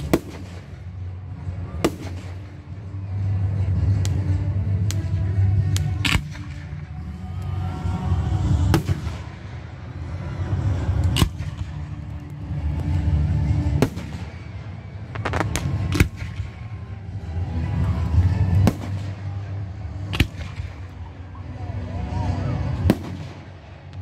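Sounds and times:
low rumble: 0:00.0 - 0:21.4
fireworks bangs: 0:15.1 - 0:16.7.

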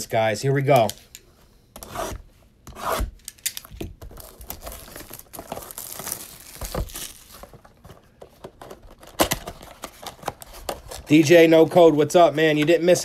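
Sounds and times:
plastic wrap crinkling and tearing: 0:04.0 - 0:08.0.

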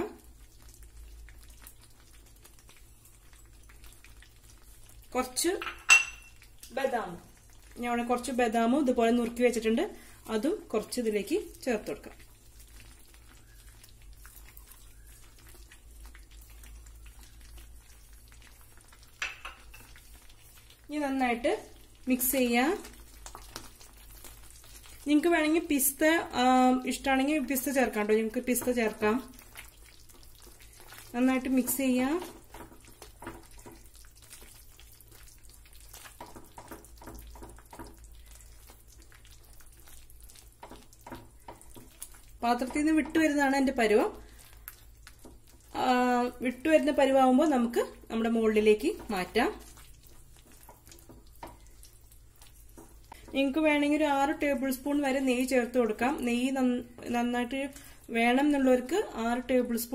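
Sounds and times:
whisk stirring thick paste: 0:11.9 - 0:20.9, 0:27.0 - 0:46.8, 0:47.4 - 0:55.7.

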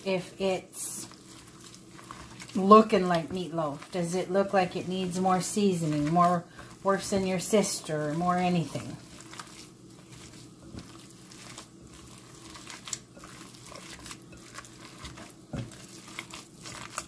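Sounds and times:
hands squishing raw meat: 0:01.0 - 0:17.0.

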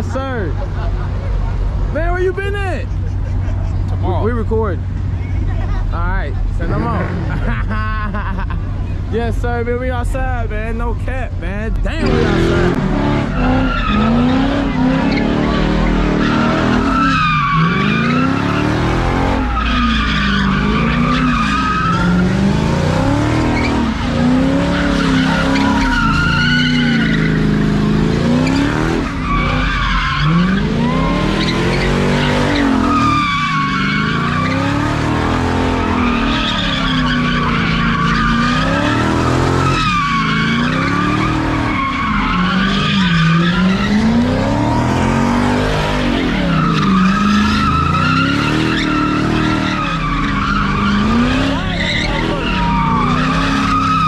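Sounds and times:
car engine revving: 0:00.0 - 0:54.0
tires squealing on asphalt: 0:11.9 - 0:54.0.

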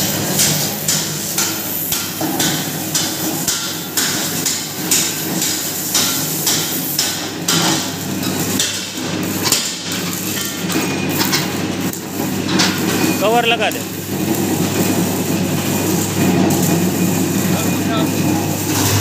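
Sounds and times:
steady low hum: 0:18.6 - 0:19.0.

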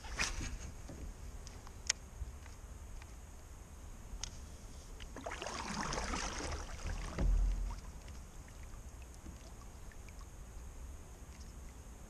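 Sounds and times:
paddle splashing and dripping: 0:05.0 - 0:10.6
paddle thumping against kayak: 0:05.1 - 0:07.9.

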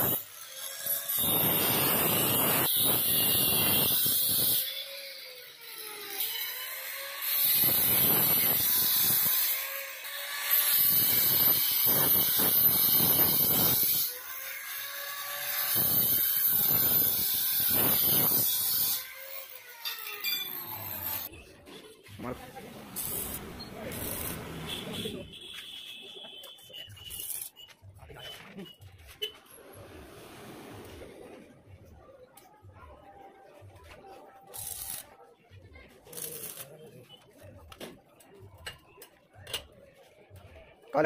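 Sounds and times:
angle grinder cutting steel: 0:00.0 - 0:21.3, 0:22.8 - 0:25.1, 0:34.5 - 0:35.0, 0:36.1 - 0:36.7.

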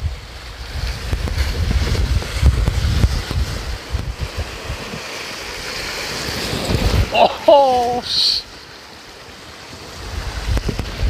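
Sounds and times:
wind buffeting microphone: 0:00.0 - 0:08.2, 0:09.7 - 0:11.0
waves breaking against rocks: 0:00.0 - 0:11.0.

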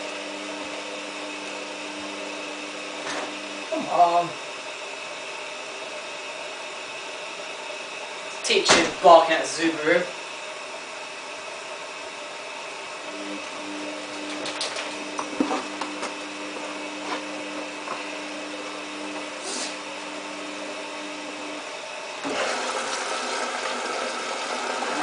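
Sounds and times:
washing machine tumbling: 0:08.5 - 0:09.3, 0:14.0 - 0:19.4, 0:22.2 - 0:25.0.

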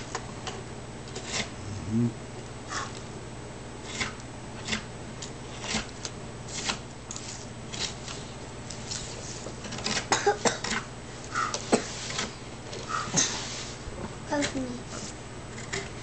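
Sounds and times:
knife scraping cuts into wood: 0:01.1 - 0:01.6, 0:03.8 - 0:04.9, 0:05.5 - 0:05.9.

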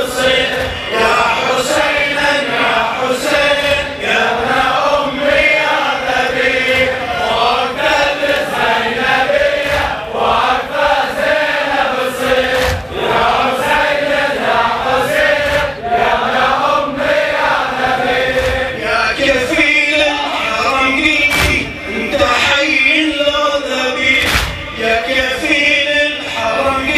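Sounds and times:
group chanting a lament: 0:00.0 - 0:26.9.

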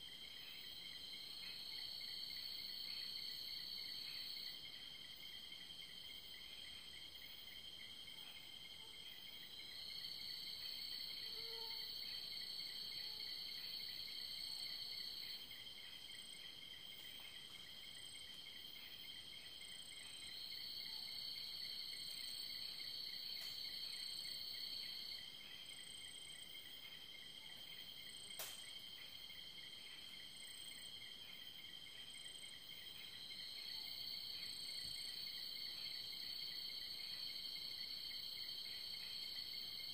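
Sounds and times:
crickets trilling: 0:09.2 - 0:39.9
faint sharp click: 0:28.3 - 0:28.8.

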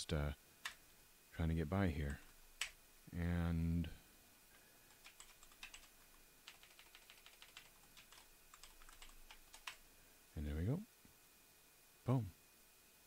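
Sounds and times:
typing on computer keyboard: 0:04.9 - 0:09.8.

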